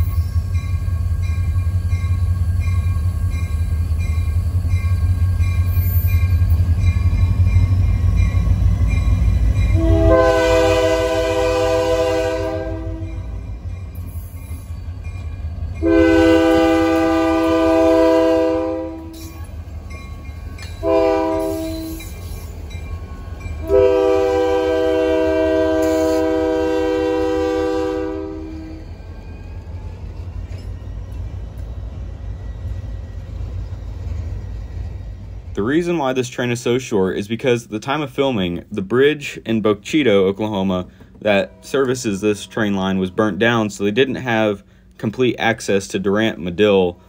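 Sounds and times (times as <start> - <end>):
diesel locomotive engine rumble: 0.0 - 47.0
train air horn blasts: 9.7 - 13.3, 15.8 - 19.3, 20.8 - 22.0, 23.6 - 28.8.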